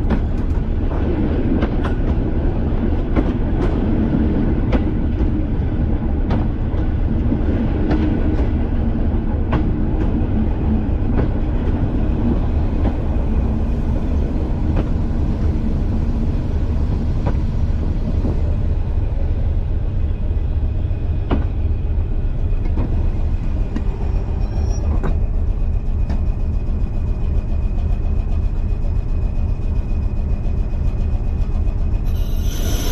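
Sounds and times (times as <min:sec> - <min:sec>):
rail-joint clicks: 0:00.0 - 0:02.3, 0:02.9 - 0:03.9, 0:04.6 - 0:05.4, 0:06.2 - 0:08.7, 0:09.4 - 0:13.3, 0:21.2 - 0:21.6, 0:22.5 - 0:28.7
train engine and running rumble: 0:00.0 - 0:32.9.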